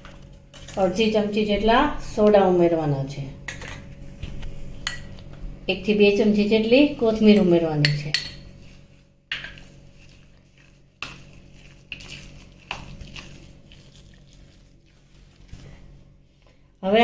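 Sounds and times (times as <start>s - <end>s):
spoon scraping batter in bowl: 7.3s - 16.0s
spoon clinking against bowl: 7.8s - 8.5s.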